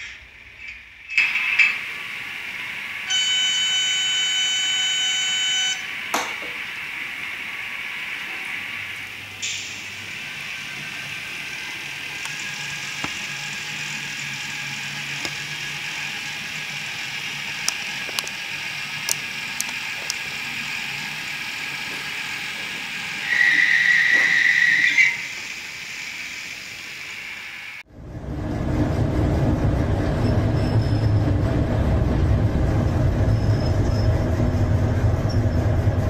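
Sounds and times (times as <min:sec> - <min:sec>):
model train engine sound: 0:01.1 - 0:27.9
loud high-pitched tone: 0:03.0 - 0:06.0.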